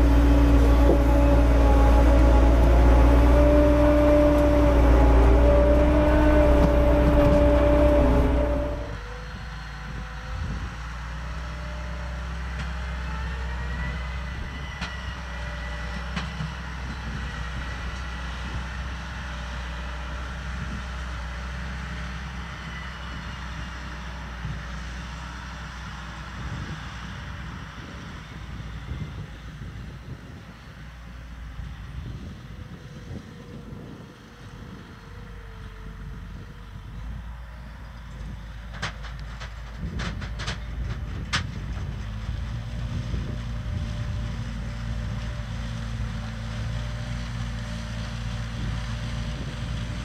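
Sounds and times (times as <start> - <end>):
harvester machine humming: 0.0 - 21.0.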